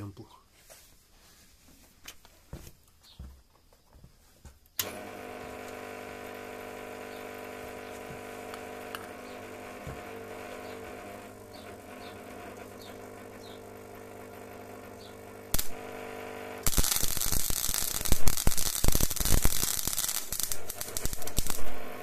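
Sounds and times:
faint footsteps and handling knocks: 0.4s - 4.7s
welder transformer humming: 4.8s - 22.0s.

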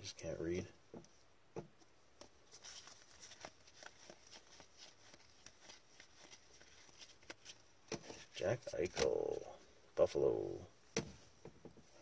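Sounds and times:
cards being flipped through: 2.2s - 9.5s.

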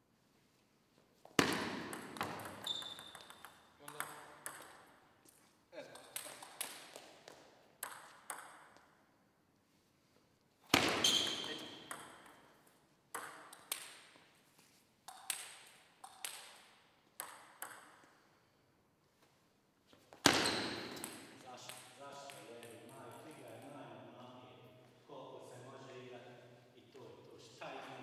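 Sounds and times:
table tennis ball bouncing: 1.4s - 5.1s, 5.9s - 9.1s, 10.7s - 14.2s, 15.0s - 18.2s, 20.2s - 23.7s.

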